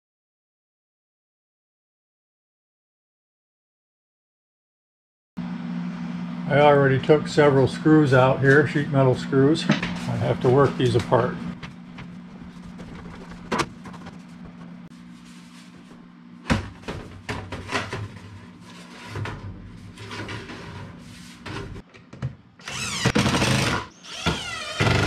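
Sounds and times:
metal pipe scraping and rattling: 17.5s - 21.8s.

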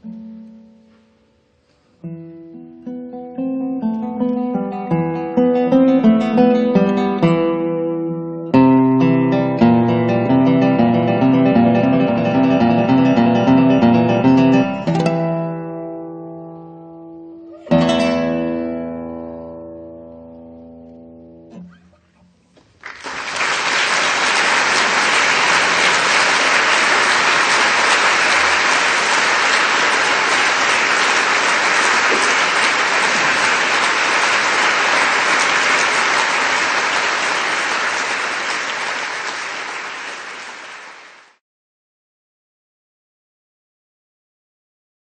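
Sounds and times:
dense applause: 22.7s - 41.4s.

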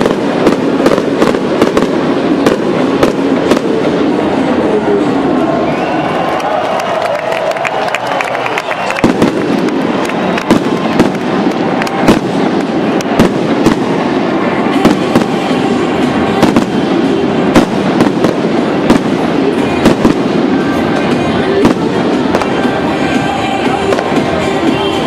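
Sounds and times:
fireworks bursting: 0.0s - 25.0s.

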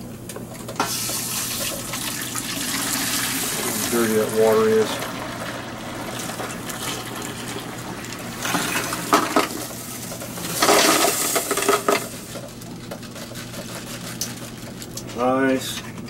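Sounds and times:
water pouring into a metal pot: 0.9s - 9.6s.

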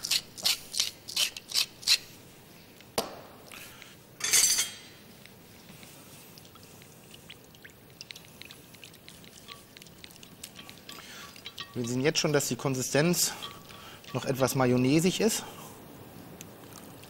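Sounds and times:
pepper mill grinding: 0.0s - 2.1s, 9.2s - 15.4s
utensil ticking in a bowl: 6.4s - 15.5s.

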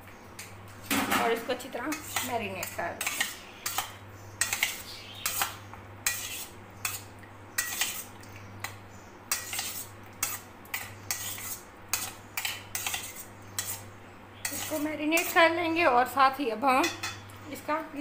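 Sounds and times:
metal spoon scraping steel bowl: 1.8s - 8.1s, 9.3s - 15.5s.

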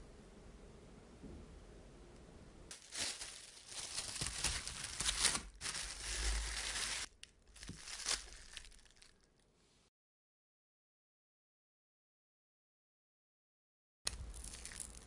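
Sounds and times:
plastic cling film crinkling: 2.7s - 9.4s, 14.1s - 15.0s.

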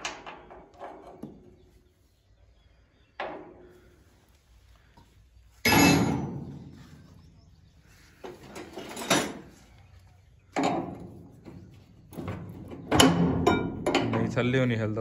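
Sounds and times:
metal knocks on steel frame: 5.6s - 6.7s, 10.6s - 11.2s, 12.1s - 14.5s.

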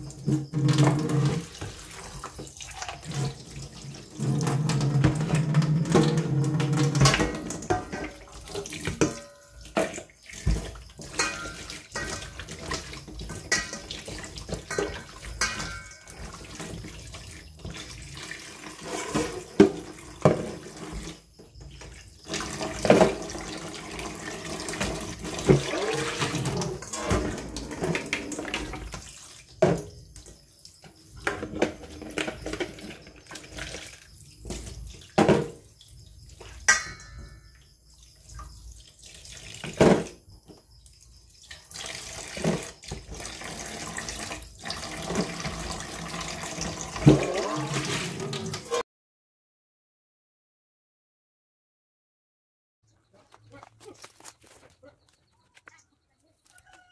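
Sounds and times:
tap water running and splashing: 0.0s - 48.8s
bowls clinking against sink: 4.2s - 16.9s, 36.4s - 37.7s.

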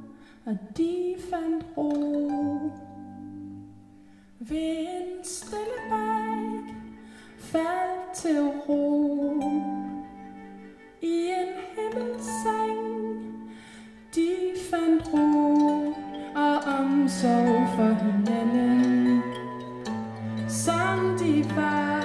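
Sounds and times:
bowed cello notes: 4.5s - 22.0s.

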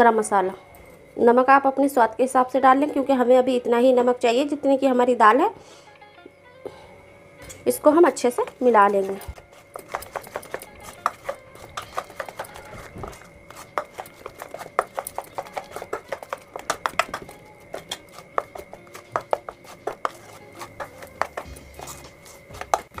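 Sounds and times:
hand mixing batter in metal bowl: 8.1s - 23.0s.

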